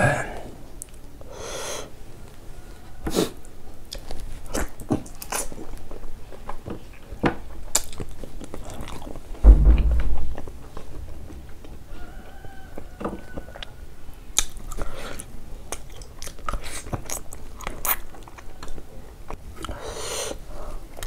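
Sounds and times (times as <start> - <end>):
person chewing food: 3.8 - 6.6, 7.5 - 9.2, 14.4 - 19.8
low thud: 9.4 - 10.6.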